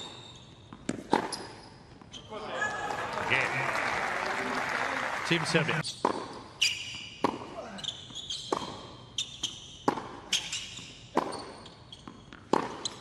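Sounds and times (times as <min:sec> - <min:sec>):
shoes squeaking on court: 0:00.0 - 0:02.4, 0:05.8 - 0:13.0
tennis ball hits and bounces: 0:00.7 - 0:01.5, 0:09.8 - 0:13.0.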